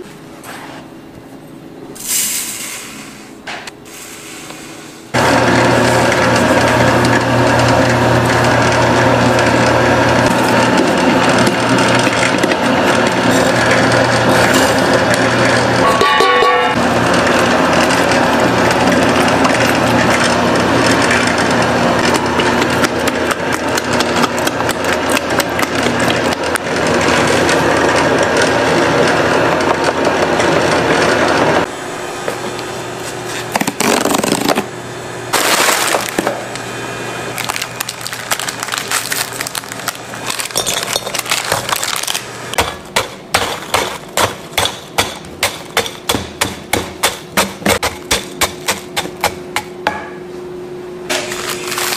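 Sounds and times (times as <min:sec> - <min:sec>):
stand mixer running: 0:05.2 - 0:33.0, 0:33.6 - 0:50.1
stick pounding cookies in glass bowl: 0:42.6 - 0:49.7.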